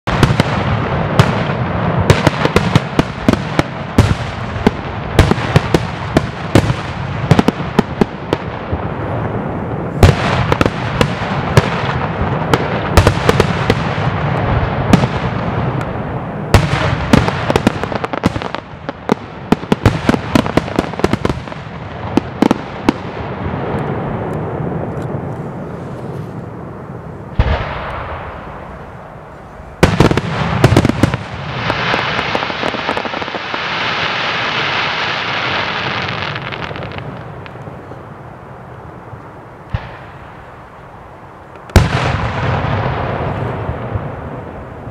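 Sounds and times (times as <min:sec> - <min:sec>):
firework bangs: 0:00.0 - 0:38.1, 0:39.7 - 0:41.0, 0:41.6 - 0:44.9
firework crackle: 0:00.0 - 0:44.9.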